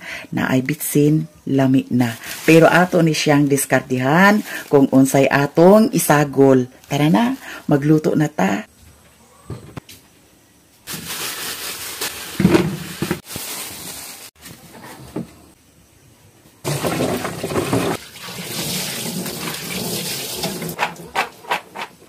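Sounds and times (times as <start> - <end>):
tap water running into sink: 16.7 - 20.8.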